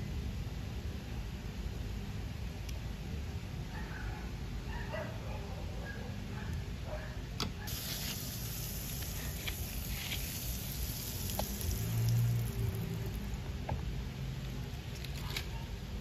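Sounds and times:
batter sizzling on hot plates: 7.7 - 13.4.

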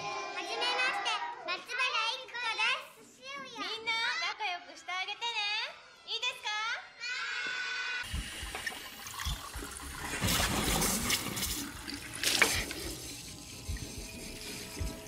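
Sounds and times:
tap water running into sink: 8.1 - 15.0.

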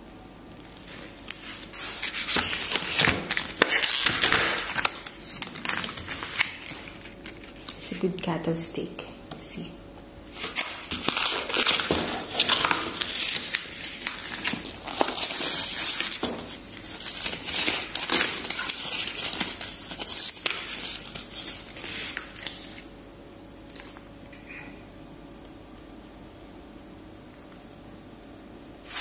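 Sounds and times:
plastic packaging crinkling: 1.2 - 8.1, 10.2 - 22.9.

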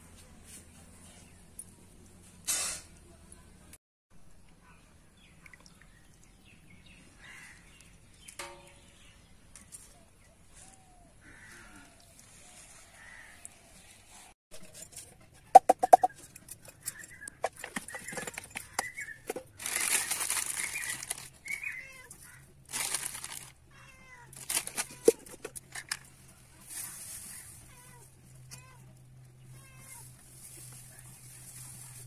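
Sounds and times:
sharp clicks and knocks: 15.6 - 19.5
dry straw rustling: 19.6 - 21.7, 22.6 - 23.6, 26.2 - 28.5, 29.6 - 32.0.

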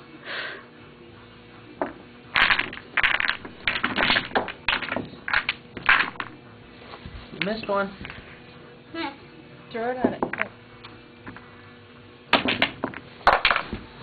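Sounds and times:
wooden blocks clattering: 1.8 - 6.3, 7.2 - 8.2, 10.0 - 10.5, 12.3 - 14.0.

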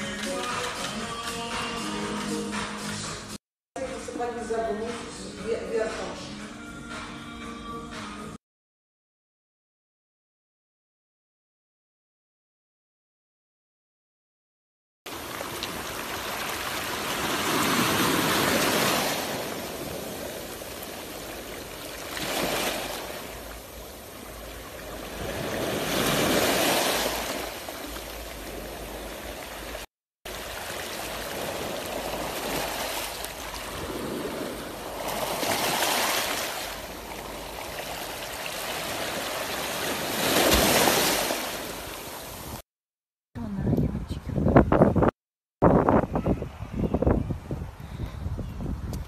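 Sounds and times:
waves washing over pebbles: 15.1 - 42.6.

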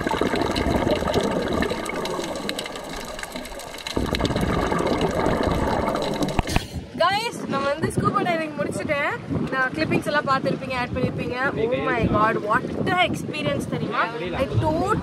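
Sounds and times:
underwater bubbling of exhaled breath: 0.0 - 6.9.

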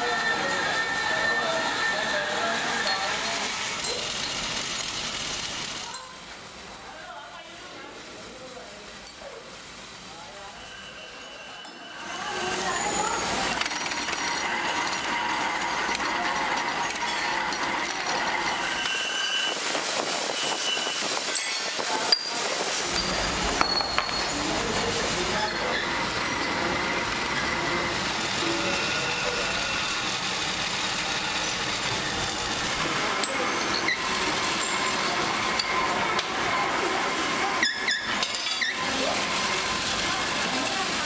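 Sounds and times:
high squealing tones: 10.5 - 30.3, 31.1 - 36.0, 37.4 - 39.5
milling cutter clattering through metal: 13.3 - 24.4, 30.2 - 36.4, 37.6 - 38.9
sharp metal clinks: 21.3 - 24.5.

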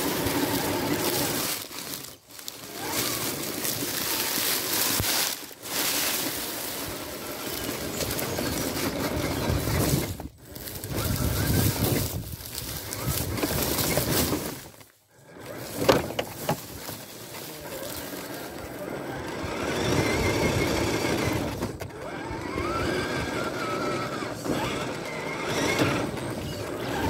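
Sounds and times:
tires crunching over leaves and stones: 0.0 - 27.0
toy car motor and gears whining: 0.0 - 27.0.

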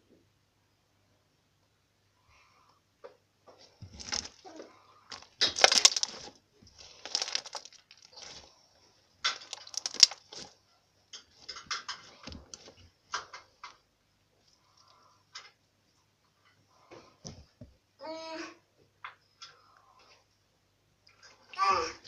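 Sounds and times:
hands squishing slime: 3.8 - 8.6, 9.2 - 10.6.

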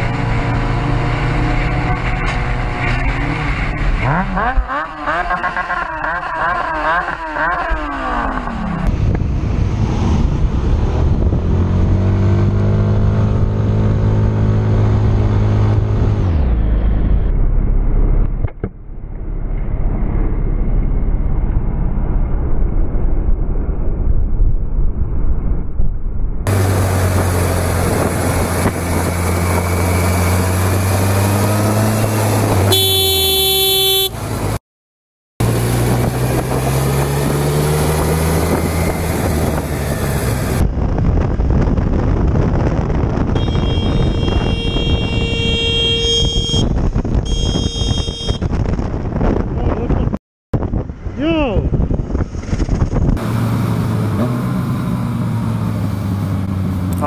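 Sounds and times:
motorcycle engine accelerating: 0.0 - 34.6, 35.4 - 51.0
road noise: 0.0 - 34.6, 35.4 - 57.0
car horn blaring: 32.7 - 34.3, 43.4 - 48.5.

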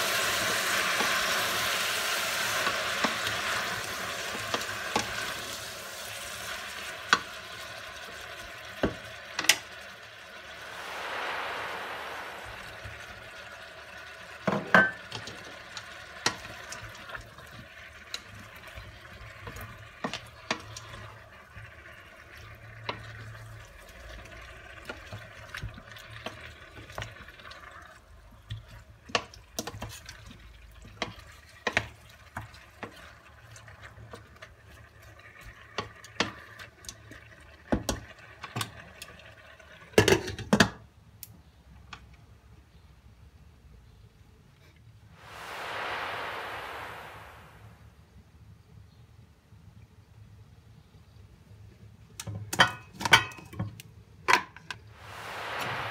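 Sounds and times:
wet hiss from cooking pot: 10.2 - 13.8, 45.1 - 47.9, 54.9 - 55.9
wooden spoon stirring in pot: 28.3 - 37.2.

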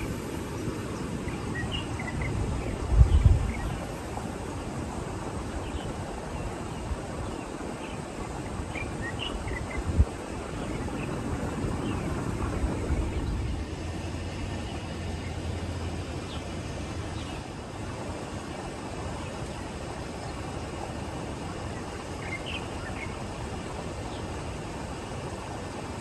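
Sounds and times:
low steady hum: 9.2 - 26.0
steady low rumble: 10.0 - 18.3.

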